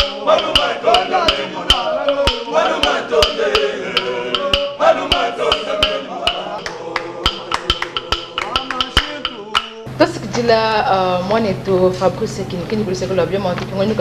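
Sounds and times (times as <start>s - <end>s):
sharp steady click beat: 0.0s - 9.9s
choir singing: 0.0s - 10.0s.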